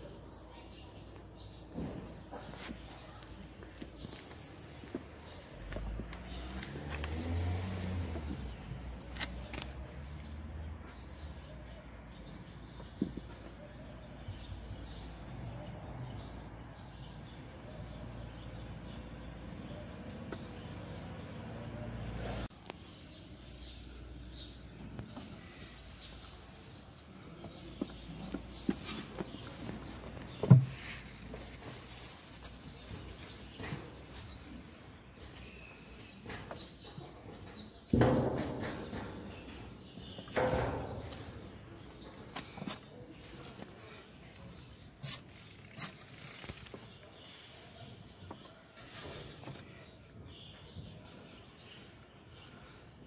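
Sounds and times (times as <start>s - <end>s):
rustling of handling: 28.3s - 34.9s.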